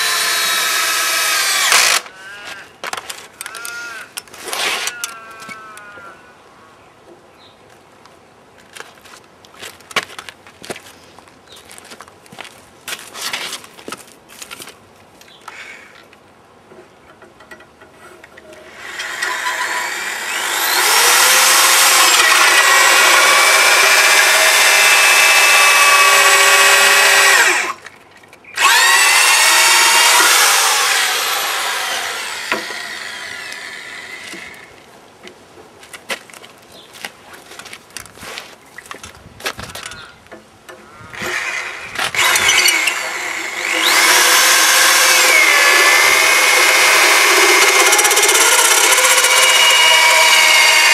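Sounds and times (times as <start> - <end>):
power tool cutting log: 0.0 - 2.2, 18.5 - 27.8, 28.6 - 34.8, 41.1 - 50.9.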